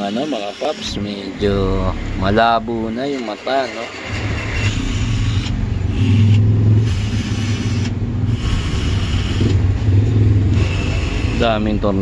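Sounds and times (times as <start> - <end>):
electric screwdriver motor humming: 4.7 - 9.6.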